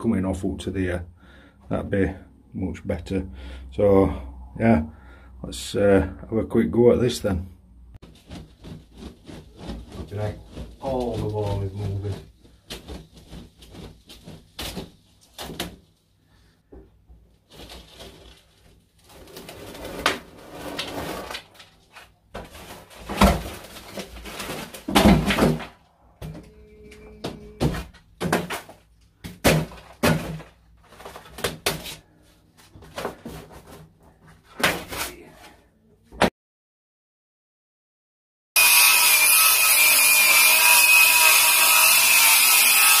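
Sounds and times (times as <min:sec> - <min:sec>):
plaster cracking and tearing: 0:17.5 - 0:25.8
debris dropping to floor: 0:27.6 - 0:31.8.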